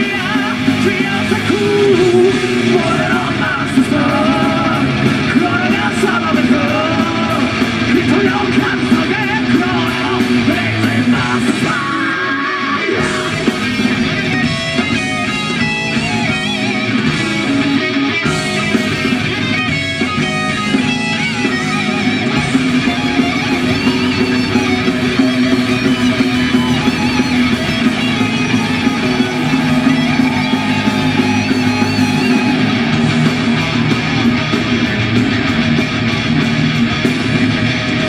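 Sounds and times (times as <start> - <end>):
drums with crashing cymbals: 0.0 - 12.2, 12.9 - 38.0
man singing: 0.0 - 13.6
bass guitar: 0.0 - 38.0
distorted electric guitars: 0.0 - 38.0.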